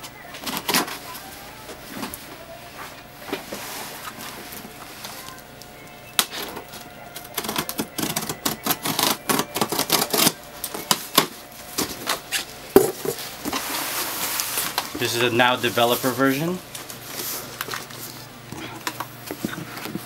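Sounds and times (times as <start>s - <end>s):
scissors cutting packing tape: 0.4s - 1.1s, 7.2s - 12.5s.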